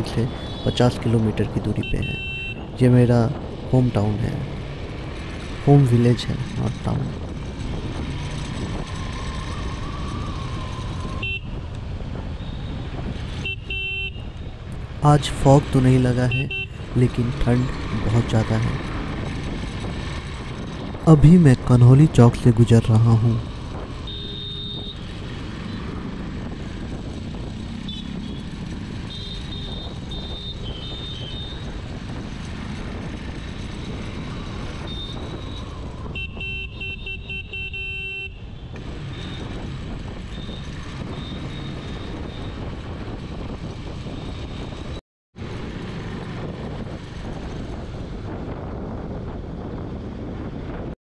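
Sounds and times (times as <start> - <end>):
traffic horns beeping: 0.0 - 2.8, 11.2 - 11.6, 12.4 - 18.6, 23.9 - 25.8, 27.8 - 31.8, 34.7 - 42.6
motorcycle engine: 6.3 - 15.0, 23.4 - 48.8
wind noise: 6.3 - 22.7, 23.3 - 36.9, 38.4 - 51.0.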